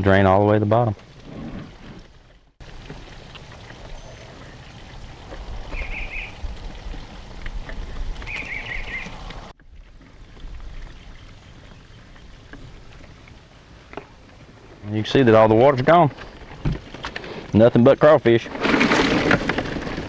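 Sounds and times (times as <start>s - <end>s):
water trickling from drain: 2.6s - 14.4s.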